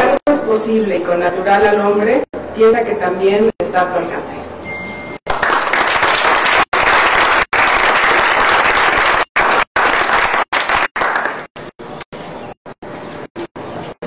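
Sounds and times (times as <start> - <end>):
audience applauding: 5.3 - 11.5.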